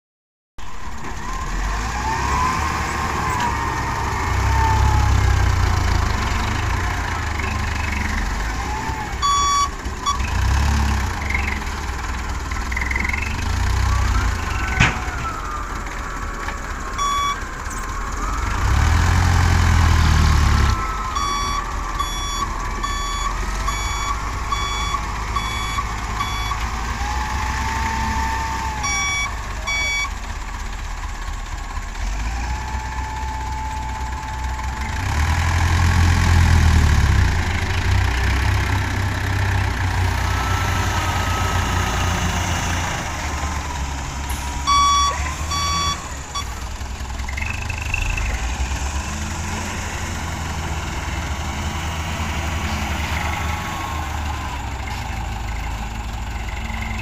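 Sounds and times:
truck engine running and revving: 0.6 - 57.0
truck reversing alarm beeping: 0.9 - 57.0.

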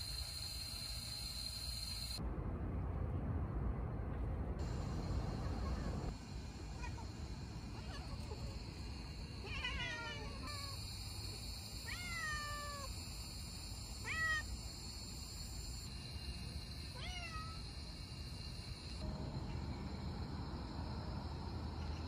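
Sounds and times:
cat meowing: 9.4 - 10.8, 11.8 - 12.9, 14.0 - 14.5, 17.0 - 17.6.

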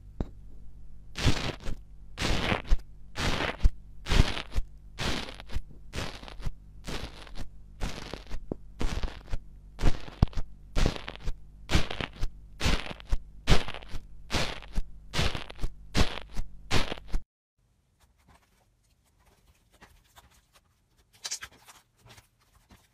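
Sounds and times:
tool crunching into foam: 1.2 - 17.2.

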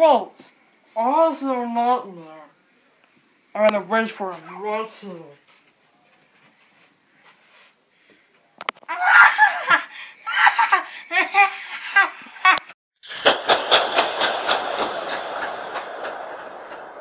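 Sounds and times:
person laughing: 9.0 - 16.2.

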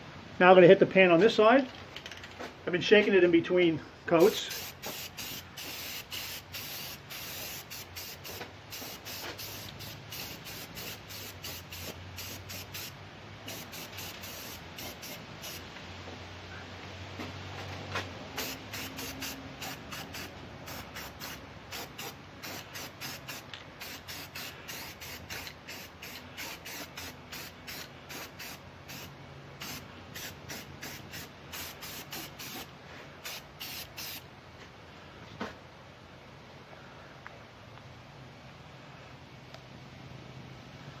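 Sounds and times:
spray-paint can hissing: 4.2 - 15.6, 18.3 - 34.2.

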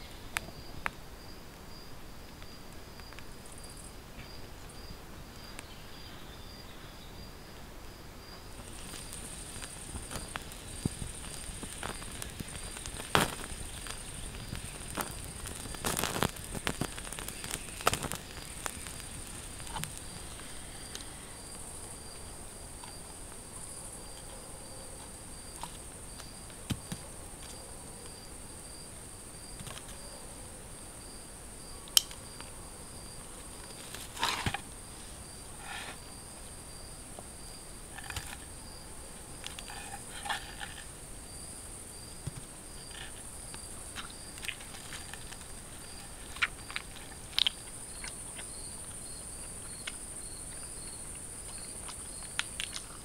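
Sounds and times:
night insects chirping: 0.0 - 53.0
wood stove fire crackling: 8.5 - 23.9.

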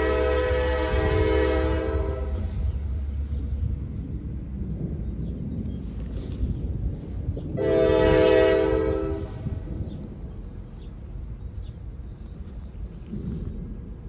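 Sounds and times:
locomotive air horn blast: 0.0 - 2.7, 7.6 - 9.7
locomotive low rumble: 0.0 - 14.0.

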